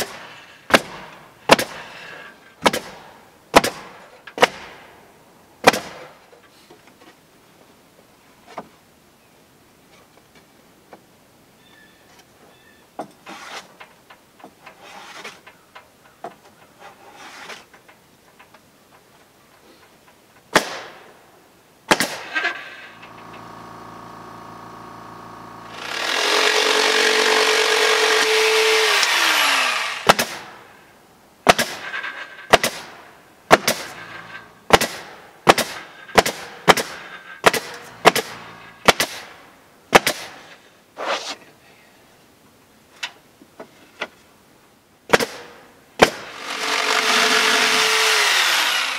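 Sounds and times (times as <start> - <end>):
jigsaw sawing wood: 22.4 - 30.4, 33.6 - 34.6, 37.5 - 38.9, 46.2 - 48.9
pneumatic stapler firing: 28.9 - 30.5, 33.5 - 39.3.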